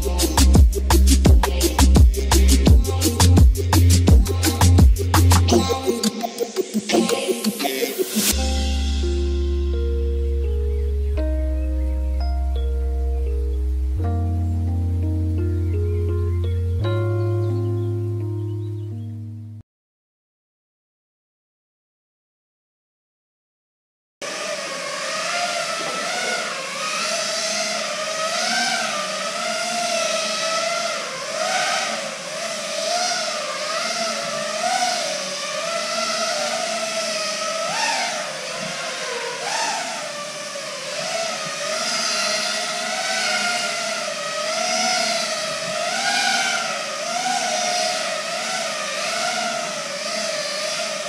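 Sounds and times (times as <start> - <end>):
quadcopter motors whining: 0.0 - 9.8, 24.2 - 51.0.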